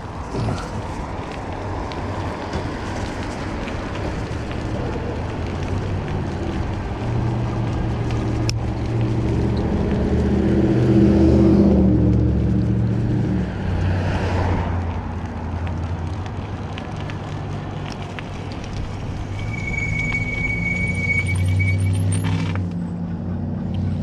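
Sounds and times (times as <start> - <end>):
car engines humming: 0.0 - 24.0
tyres rushing: 15.2 - 22.7.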